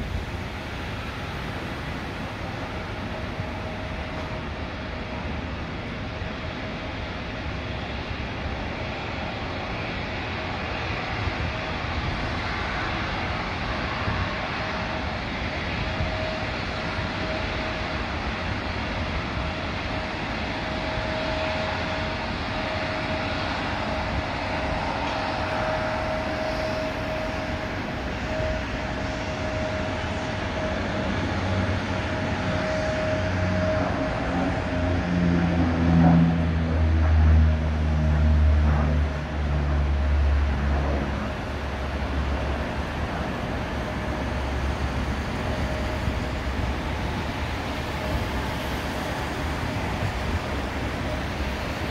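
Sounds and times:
distant turboprop engines whining: 0.0s - 51.9s
steady rushing noise: 0.0s - 51.9s.

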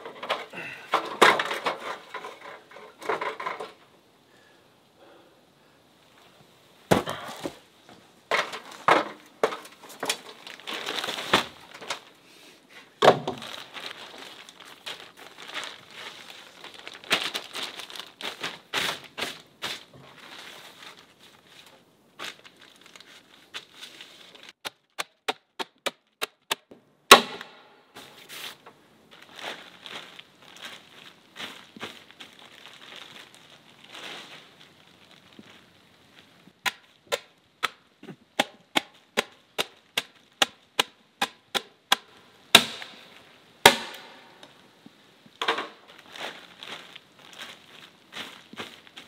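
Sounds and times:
plastic bags crinkling: 8.3s - 12.2s, 13.1s - 24.6s, 28.6s - 36.5s, 43.9s - 49.0s.

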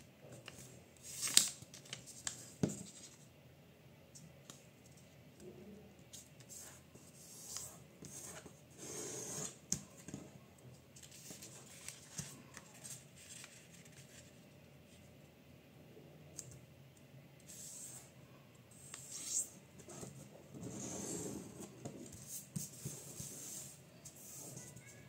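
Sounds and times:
paper rustling and scraping: 11.0s - 14.4s.

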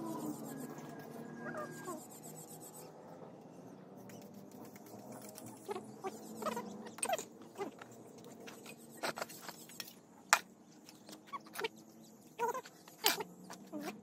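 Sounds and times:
steady low hum: 0.0s - 14.0s
faint animal yelps: 1.4s - 2.1s.

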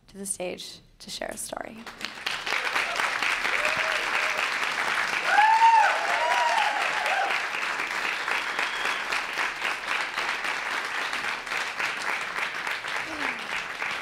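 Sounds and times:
audience applauding: 1.8s - 14.0s
audience whoops: 2.5s - 9.3s.

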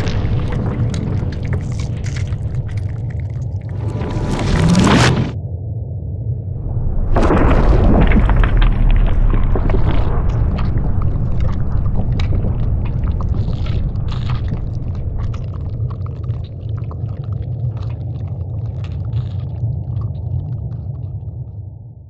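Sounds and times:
crackles and ticks: 0.0s - 5.0s, 8.0s - 21.6s
slowed-down explosion rumble: 0.0s - 17.0s.

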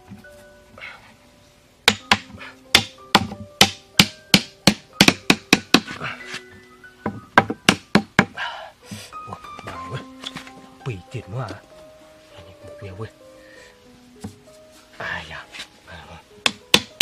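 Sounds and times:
background music: 0.0s - 17.0s
wood knocking on wooden stakes: 1.8s - 11.8s, 14.2s - 14.9s, 16.4s - 17.0s.

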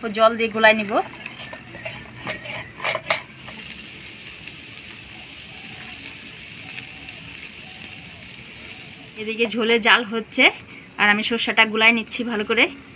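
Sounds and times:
broth boiling with bubbling hiss: 0.0s - 12.9s.

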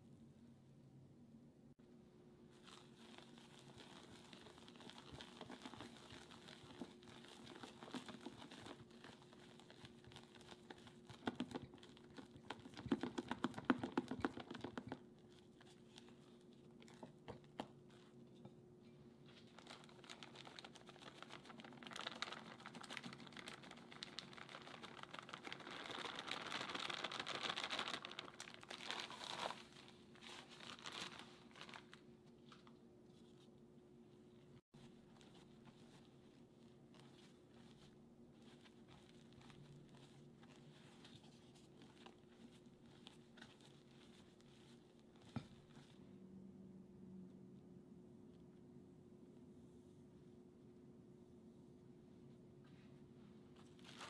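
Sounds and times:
spatula stirring sticky marshmallow: 2.5s - 18.2s, 34.8s - 45.8s.

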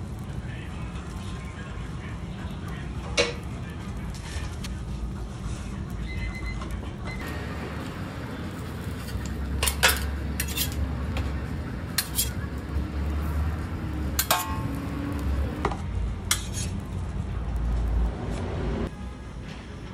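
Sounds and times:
metal spatulas scraping griddle: 8.5s - 12.8s, 14.0s - 15.2s, 16.3s - 16.9s.

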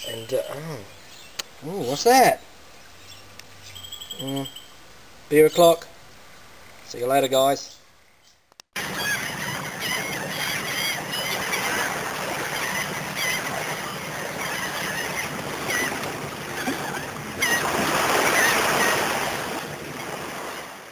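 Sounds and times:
bird chirps: 2.4s - 4.8s.

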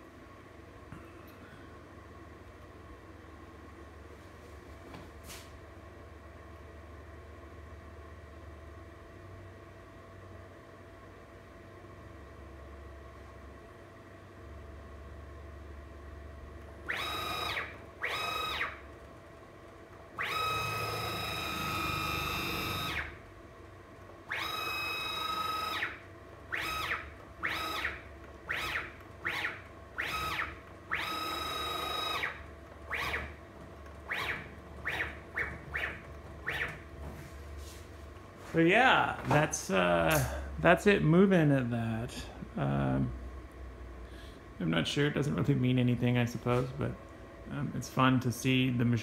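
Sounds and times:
motor whine rising and falling: 16.4s - 19.1s, 20.1s - 23.4s, 24.2s - 37.8s.

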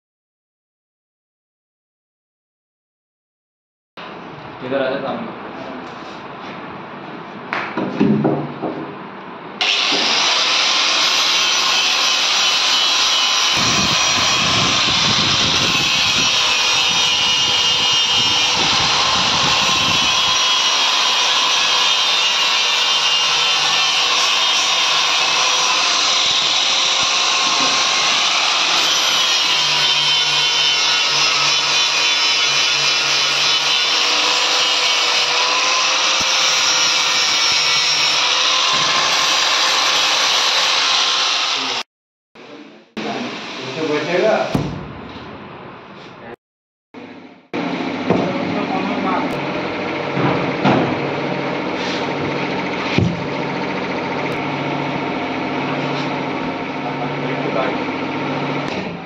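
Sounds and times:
angle grinder sanding wood: 9.6s - 41.8s, 51.6s - 53.0s.

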